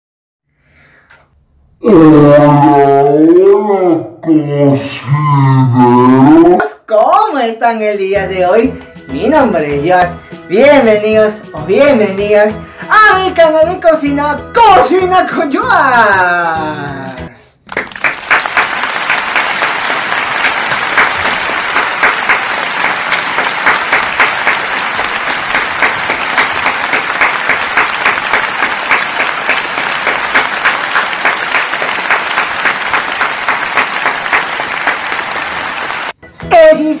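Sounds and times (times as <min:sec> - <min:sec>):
applause: 0:17.6 - 0:36.2.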